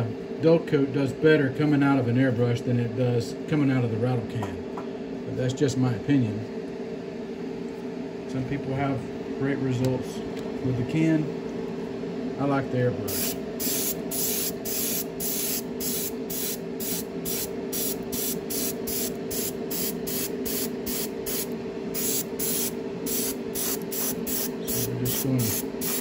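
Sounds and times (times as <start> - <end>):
steady hum: 0.0 - 26.0
airbrush spraying spurts of hiss: 13.1 - 26.0.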